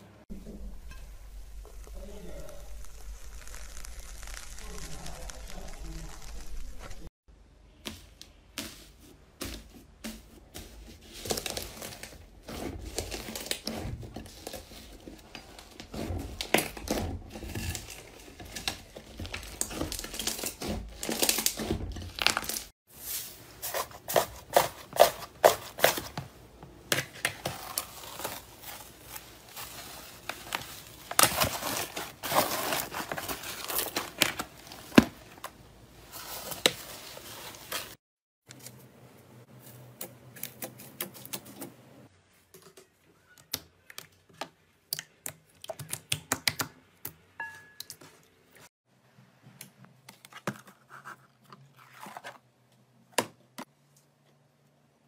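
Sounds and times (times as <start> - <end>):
slime crackling and popping: 1.7 - 7.1
foil crinkling on slime: 2.4 - 7.1, 11.0 - 26.1, 27.1 - 35.5.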